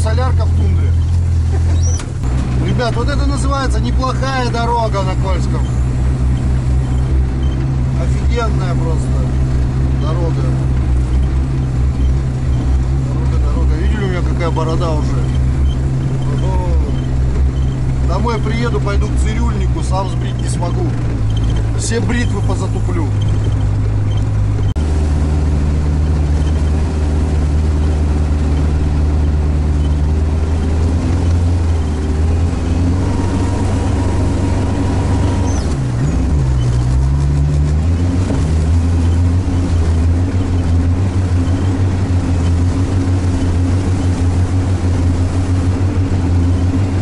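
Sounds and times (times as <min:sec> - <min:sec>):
diesel engine droning: 0:00.0 - 0:47.0.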